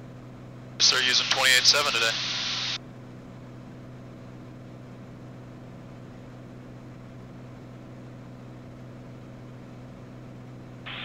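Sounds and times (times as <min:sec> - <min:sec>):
light hiss: 0:00.8 - 0:02.8
propeller engine drone: 0:00.8 - 0:02.8.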